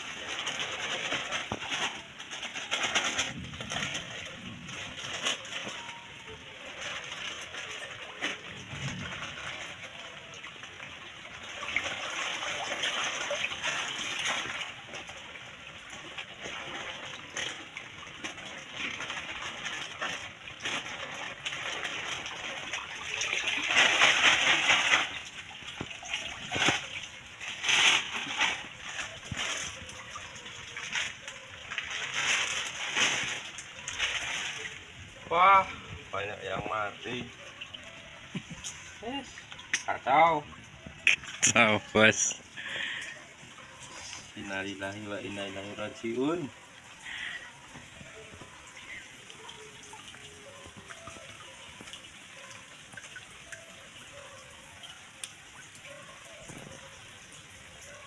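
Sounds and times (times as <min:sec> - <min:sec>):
water sloshing and splashing: 0:00.0 - 0:58.0.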